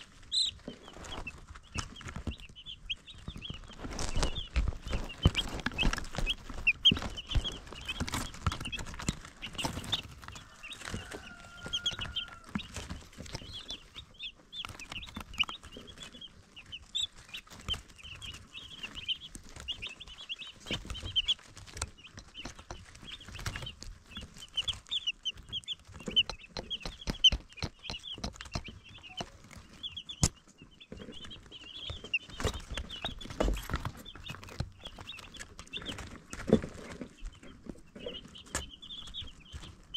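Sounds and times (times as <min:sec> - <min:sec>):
baby chicks peeping: 0:00.0 - 0:39.9
sharp clicks and taps: 0:20.6 - 0:36.6.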